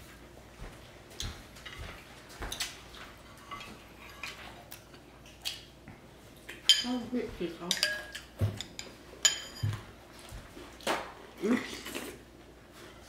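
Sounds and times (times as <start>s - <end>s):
cutlery and dishes clinking: 3.4s - 4.8s, 6.5s - 7.0s, 7.6s - 9.9s.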